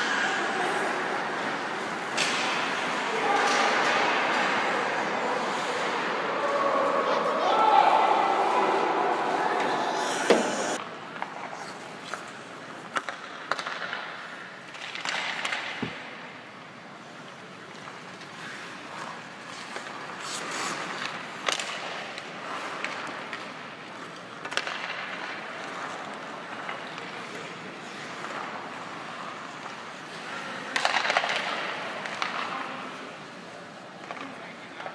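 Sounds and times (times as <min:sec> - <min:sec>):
clacks of sticks and pucks: 0:01.4 - 0:04.8, 0:09.6 - 0:16.2, 0:17.2 - 0:33.1, 0:33.9 - 0:34.9
skates scraping ice: 0:08.4 - 0:15.8, 0:17.0 - 0:34.9.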